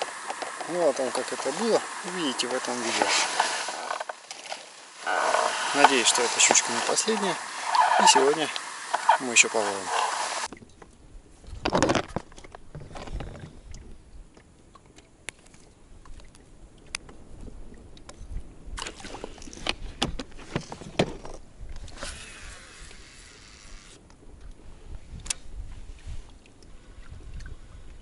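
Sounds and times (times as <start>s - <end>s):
water lapping against boat hull: 0.0s - 10.8s
handling noise: 1.5s - 10.5s.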